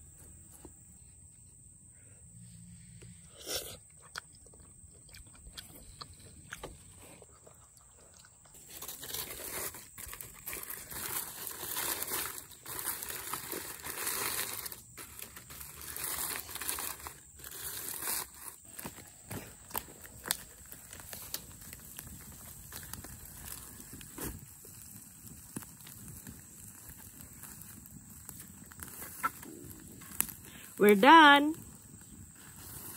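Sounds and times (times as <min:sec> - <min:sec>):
aluminium foil crumpling: 0:08.5 - 0:32.9.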